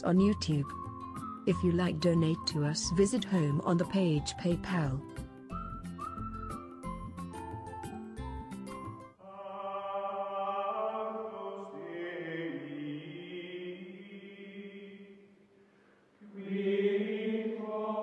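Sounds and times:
choir singing sustained chords: 9.2 - 15.4, 16.2 - 18.0.

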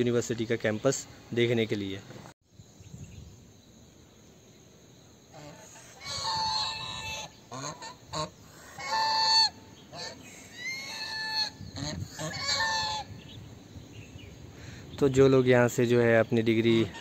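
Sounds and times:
geese honking: 5.3 - 13.1, 16.7 - 17.0.

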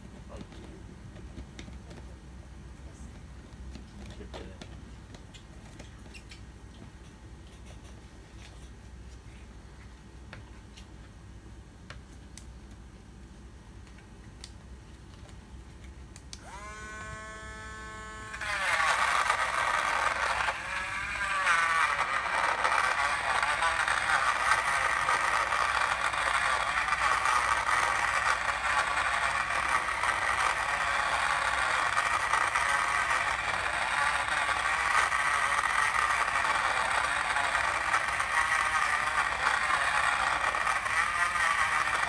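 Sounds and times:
blender chopping vegetables: 16.4 - 42.0
blender motor whining: 16.4 - 42.0.

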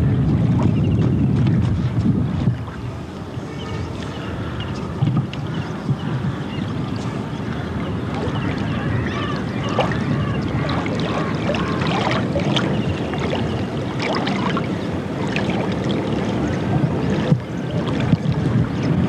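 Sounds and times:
boat engine rumble: 0.0 - 19.0
wind on microphone: 0.0 - 19.0.

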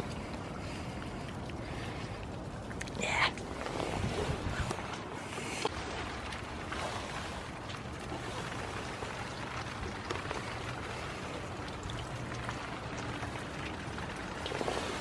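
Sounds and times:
steady rain falling: 4.6 - 15.0.

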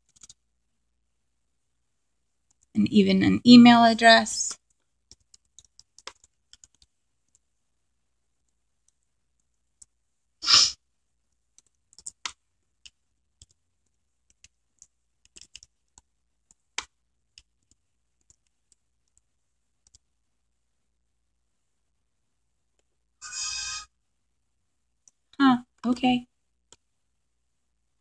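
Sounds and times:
keyboard typing: 0.0 - 0.4, 4.5 - 7.5, 11.5 - 20.1.

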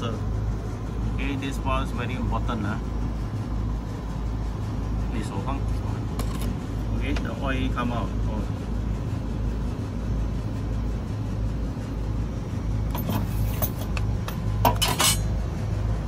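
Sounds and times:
outdoor unit humming: 0.0 - 16.0
short metallic clinks: 12.9 - 15.3.

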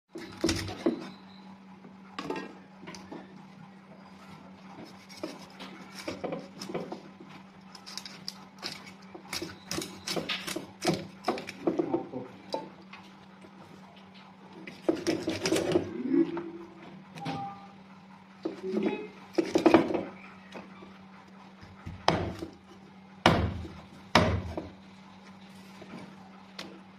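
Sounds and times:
low hum: 15.7 - 19.2
cleaver chopping on wooden block: 23.2 - 24.7.

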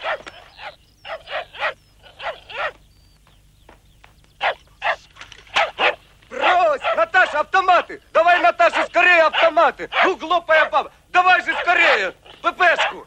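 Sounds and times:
dog barking: 0.0 - 2.8, 4.4 - 7.4, 8.6 - 10.8, 11.4 - 11.9, 12.7 - 13.0.

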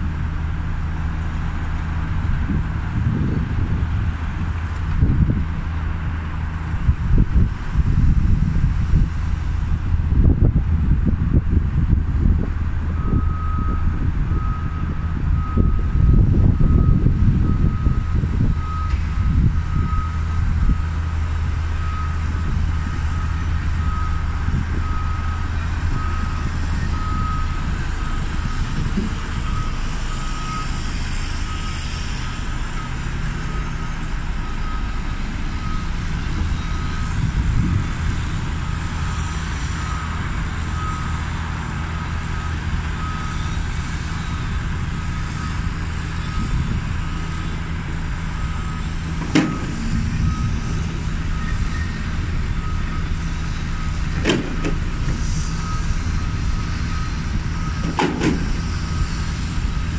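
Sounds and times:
diesel machinery running: 0.0 - 59.9
traffic: 0.0 - 59.9
reversing alarm beeping: 12.9 - 59.9.

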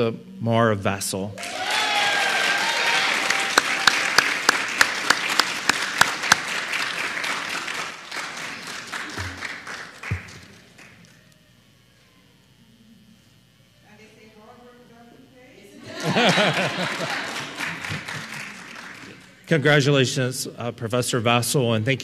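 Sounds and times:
loud sharp claps: 1.4 - 11.0, 16.8 - 19.3
audience applauding: 1.4 - 11.1, 16.0 - 19.5.

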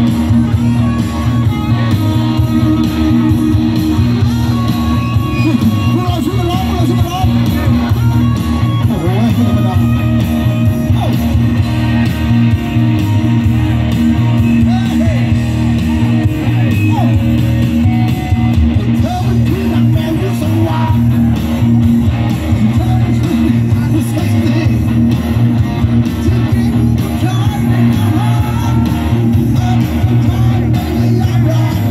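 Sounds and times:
rock band playing live: 0.0 - 31.9
person singing: 26.3 - 31.9.

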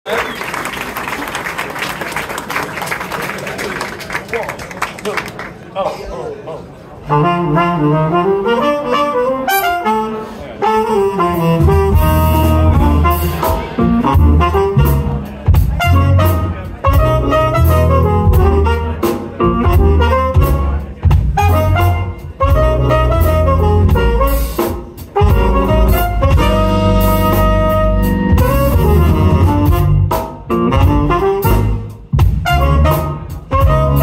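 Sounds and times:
keyboard: 7.0 - 34.0
saxophone melody: 7.0 - 34.0
trumpet melody: 7.1 - 34.0
drums: 10.7 - 34.0
electric bass: 11.0 - 34.0.

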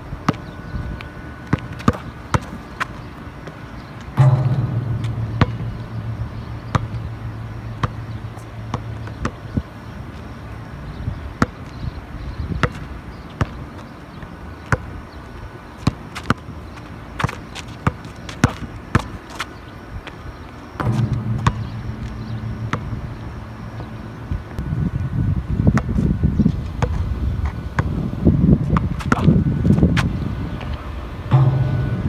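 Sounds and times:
low hum: 0.0 - 12.4, 20.4 - 28.3, 29.3 - 32.0
basketball bouncing on asphalt: 0.2 - 15.0, 15.8 - 24.7, 25.7 - 28.0, 28.6 - 30.2
ball striking rim: 3.7 - 10.0, 20.8 - 24.7, 31.3 - 32.0.

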